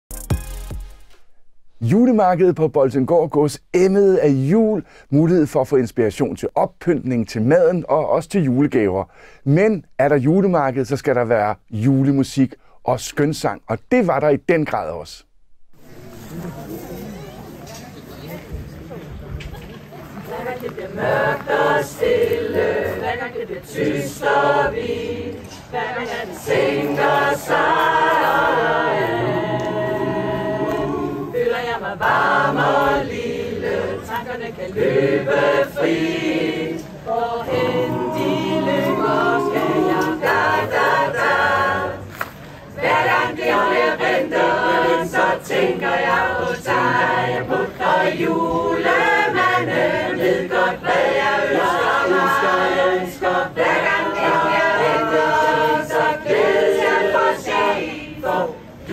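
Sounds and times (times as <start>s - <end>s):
mixed choir singing unaccompanied: 20.1s - 58.9s.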